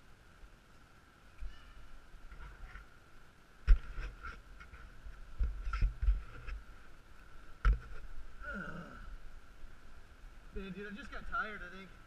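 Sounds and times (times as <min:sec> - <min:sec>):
person grunting: 0:08.4 - 0:09.1.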